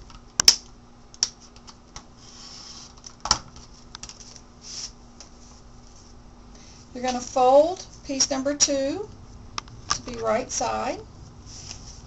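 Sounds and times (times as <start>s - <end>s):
paper swishing: 11.5s - 12.0s.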